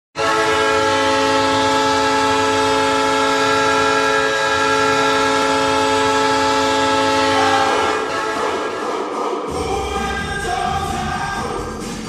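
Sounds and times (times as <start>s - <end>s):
goal horn blast: 0.2s - 9.1s.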